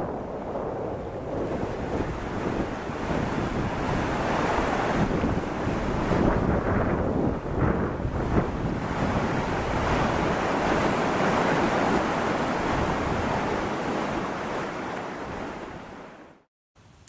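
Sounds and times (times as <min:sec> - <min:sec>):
whitewater rapids rushing: 0:08.9 - 0:16.0.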